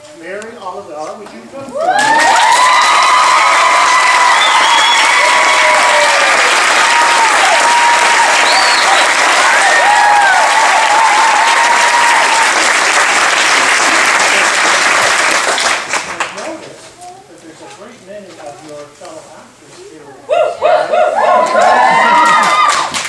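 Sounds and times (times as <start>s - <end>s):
voices whooping and cheering: 1.7s - 12.6s, 20.3s - 23.0s
audience applauding loudly: 1.8s - 16.7s, 21.2s - 23.0s.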